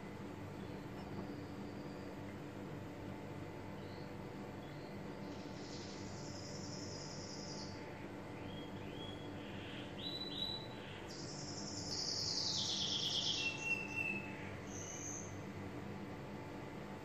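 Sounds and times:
steady low hum: 0:00.0 - 0:17.0
bird chirping and trilling: 0:08.4 - 0:15.4.

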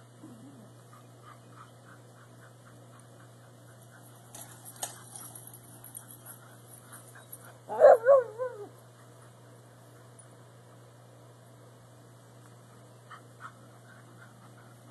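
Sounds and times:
rustle: 0:02.6 - 0:08.0
dog barking and yelping: 0:07.2 - 0:08.8.

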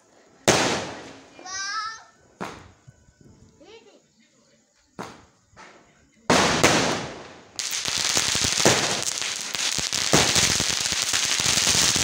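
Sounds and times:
firework crackling: 0:00.0 - 0:02.6, 0:06.3 - 0:12.0
firework bang: 0:00.5 - 0:01.2, 0:02.4 - 0:02.7, 0:06.3 - 0:12.0.

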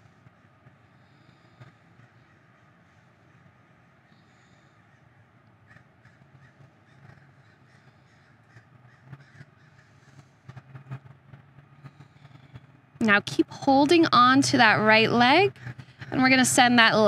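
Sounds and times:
low background rumble: 0:00.0 - 0:17.0.

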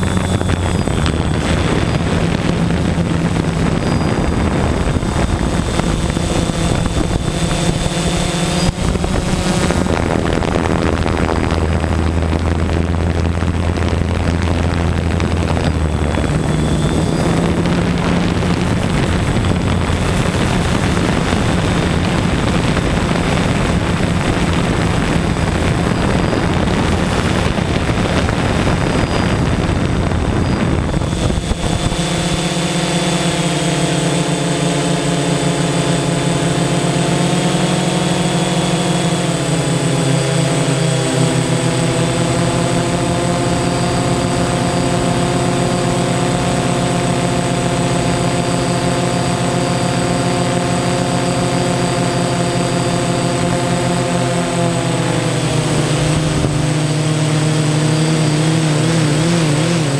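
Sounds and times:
wind rushing: 0:00.0 - 0:34.5
aircraft engine and propeller: 0:00.0 - 0:59.9
hum of held tones: 0:00.0 - 0:59.9.

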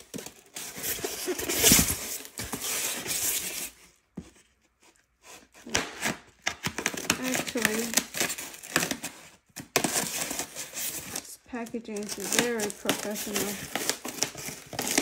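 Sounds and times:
foam box rubbing and scraping: 0:00.6 - 0:03.8
scissors cutting tape: 0:05.7 - 0:09.0.

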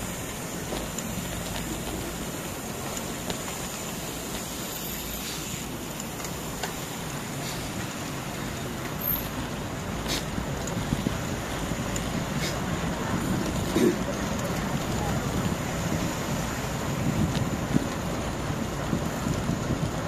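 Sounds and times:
bicycle tyres on paved road: 0:00.0 - 0:20.0
wind rushing over microphone: 0:10.3 - 0:20.0.

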